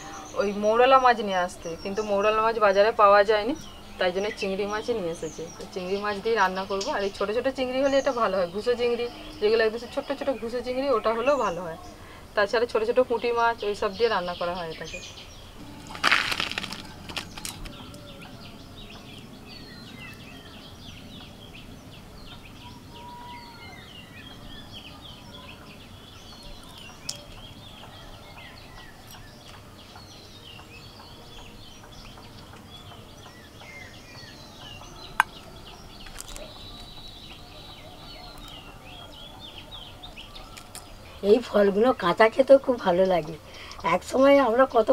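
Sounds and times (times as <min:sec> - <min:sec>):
small birds chirping: 0:00.0 - 0:44.9
brief rustle: 0:15.6 - 0:17.9.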